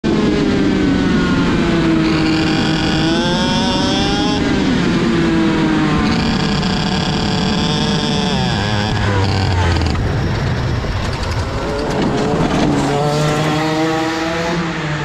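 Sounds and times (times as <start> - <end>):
kart engine revving: 0.1 - 15.0.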